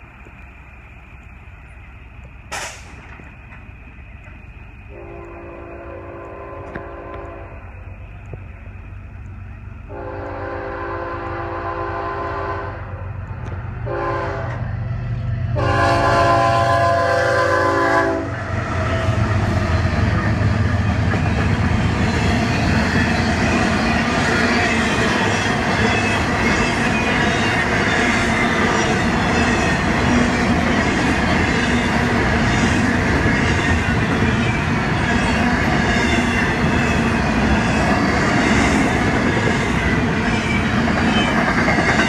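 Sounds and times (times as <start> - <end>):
train rumble and wheels on rails: 0.0 - 42.0
locomotive air horn: 4.9 - 7.6, 9.9 - 13.0, 13.8 - 14.6, 15.6 - 18.4.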